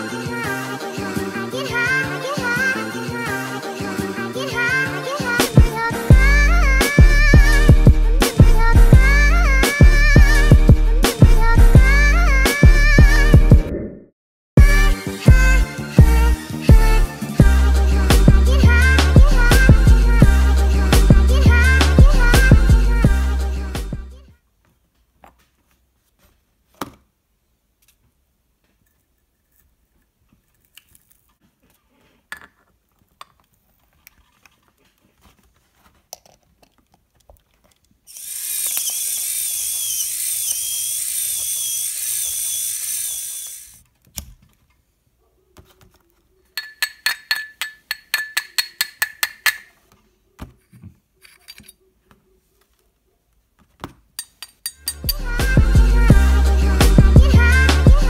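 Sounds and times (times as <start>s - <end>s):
electric grinder motor whirring: 38.1s - 43.8s.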